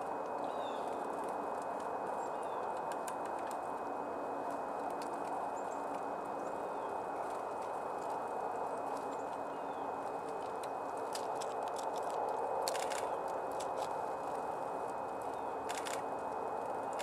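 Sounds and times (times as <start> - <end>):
steady rushing noise: 0.0 - 17.0
small birds chirping: 0.4 - 1.1, 2.2 - 2.8, 5.4 - 12.1, 15.0 - 15.8.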